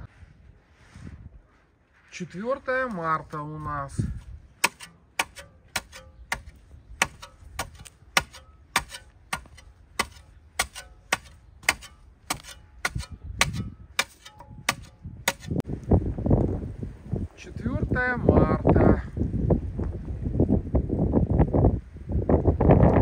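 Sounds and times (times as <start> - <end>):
wind buffeting microphone: 3.6 - 4.7, 6.2 - 8.2, 11.5 - 23.0
hoe chopping into soil: 4.6 - 15.6.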